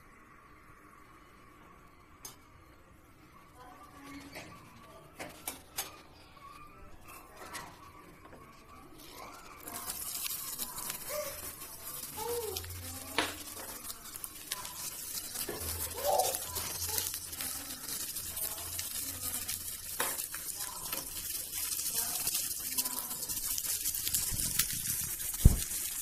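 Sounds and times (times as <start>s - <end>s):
spatula scraping pan: 7.1s - 24.7s
onions sizzling in oil: 9.6s - 26.0s.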